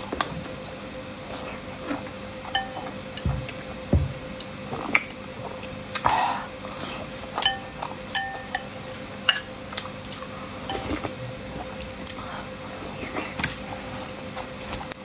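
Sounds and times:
spoon clinking ceramic bowl: 7.4s - 8.7s.

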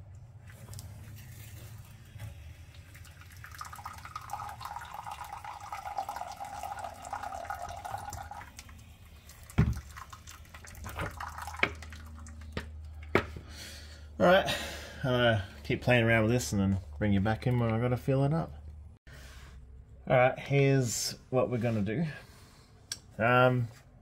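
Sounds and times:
liquid splashing into container: 2.3s - 12.6s.

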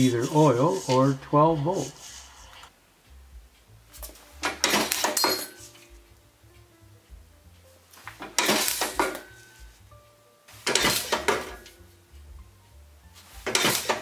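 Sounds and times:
metal shear blade clattering: 4.4s - 5.7s
treadle springing back: 4.4s - 5.8s, 8.0s - 9.4s, 10.6s - 11.8s, 13.4s - 14.0s.

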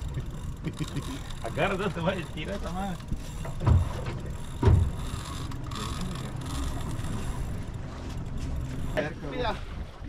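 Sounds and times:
low boat rumble: 0.0s - 10.0s
dull thumps: 3.4s - 5.0s.

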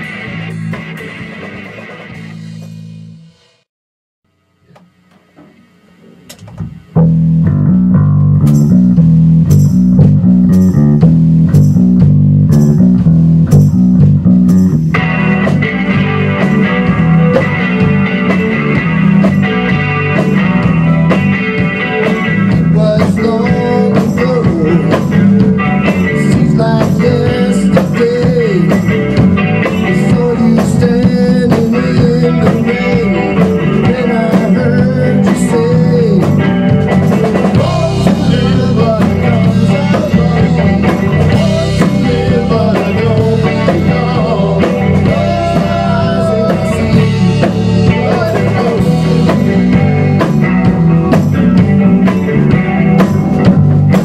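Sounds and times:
electric bass: 0.0s - 3.6s, 4.6s - 54.0s
drum kit: 0.0s - 3.7s, 4.7s - 54.0s
electric guitar bending notes: 4.6s - 54.0s.

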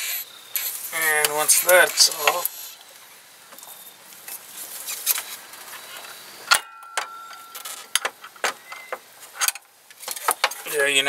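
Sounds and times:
sharp metallic clink: 6.5s - 8.0s.

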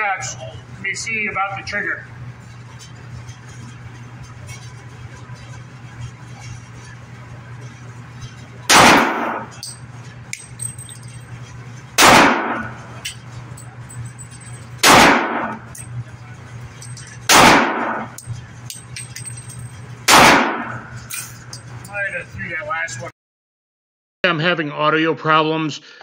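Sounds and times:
low hum: 0.0s - 23.1s
pistol shots echoing: 8.7s - 9.6s, 12.0s - 12.8s, 14.8s - 15.6s, 17.3s - 18.1s, 20.1s - 20.8s.

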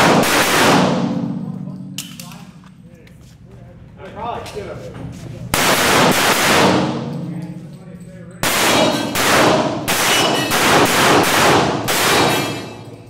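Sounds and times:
pistol shots echoing indoors: 0.0s - 2.8s, 5.5s - 13.0s.

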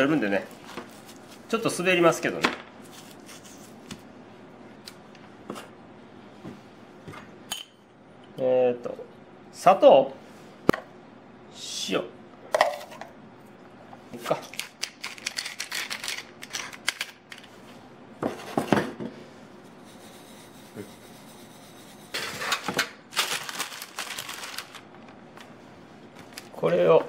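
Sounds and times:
parchment paper crinkling: 23.1s - 25.5s.

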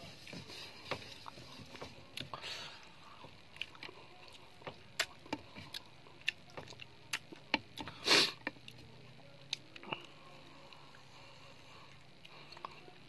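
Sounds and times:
person chewing: 3.0s - 8.8s.

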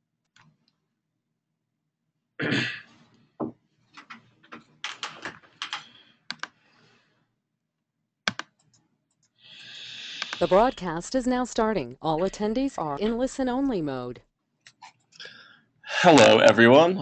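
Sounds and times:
computer keyboard typing: 4.0s - 6.6s, 8.3s - 9.3s, 10.2s - 11.1s.

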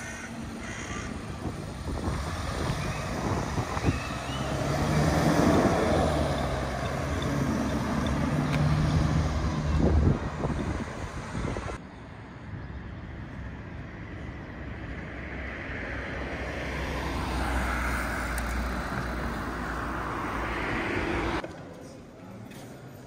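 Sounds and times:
low rumble of road traffic: 0.0s - 23.0s
car passing close by: 1.8s - 11.8s.

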